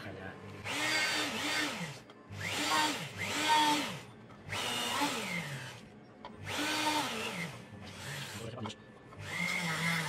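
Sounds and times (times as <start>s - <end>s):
rotary tool cutting: 6.4s - 8.6s, 9.2s - 10.0s.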